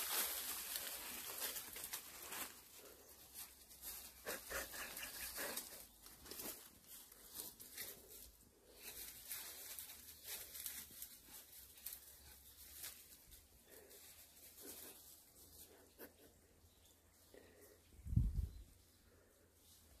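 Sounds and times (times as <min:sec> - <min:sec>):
footsteps crunching dry leaves: 0:00.0 - 0:14.2.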